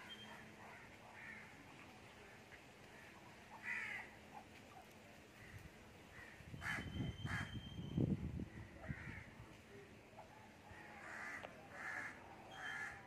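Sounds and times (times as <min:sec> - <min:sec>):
bird cawing: 0:03.6 - 0:04.1, 0:10.7 - 0:13.0.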